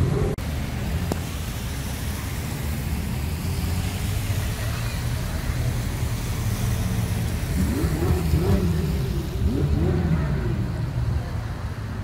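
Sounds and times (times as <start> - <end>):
low rumble of slow cars: 0.0 - 12.0
sports car engine revving: 6.2 - 10.9.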